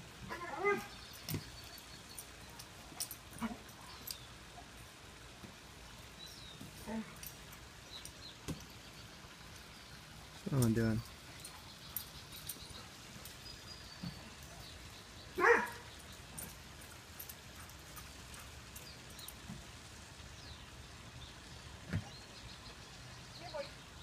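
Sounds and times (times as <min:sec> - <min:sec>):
dog barking: 0:15.4 - 0:15.8.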